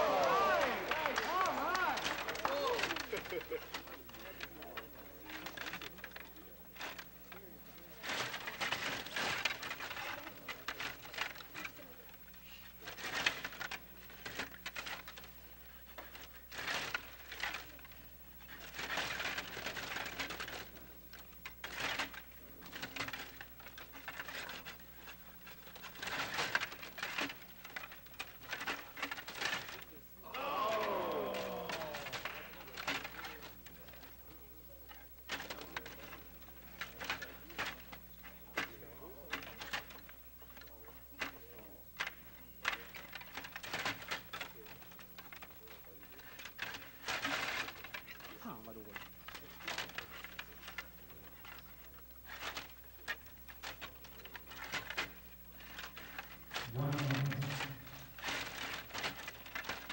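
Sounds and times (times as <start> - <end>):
players hitting puck: 0.0 - 4.4, 30.2 - 33.2
table hockey game clattering: 0.0 - 7.2, 21.4 - 34.2, 52.2 - 59.9
table hockey rods clicking and rattling: 0.0 - 59.9.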